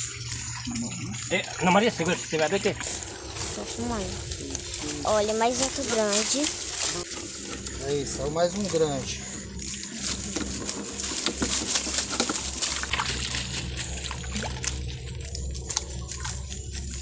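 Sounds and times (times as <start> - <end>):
water splashing and dripping: 0.0 - 17.0
fish thrashing at water surface: 8.6 - 16.4.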